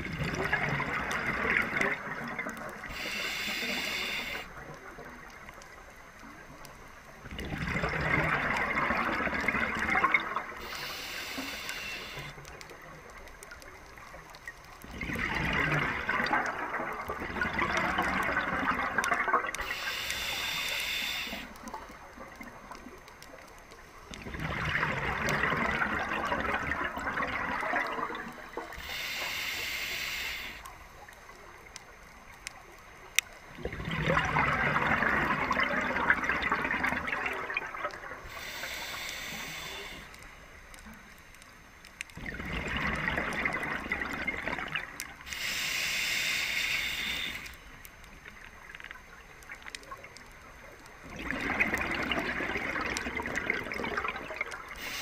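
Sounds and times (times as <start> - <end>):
bubbling exhales through regulator: 0.0 - 5.4, 7.2 - 12.4, 14.8 - 22.5, 24.1 - 29.1, 33.6 - 40.2, 42.2 - 47.6, 50.6 - 55.0
hissing inhales: 2.9 - 4.5, 10.6 - 12.4, 19.6 - 21.6, 28.8 - 30.7, 38.3 - 40.2, 45.3 - 47.7, 54.8 - 55.0.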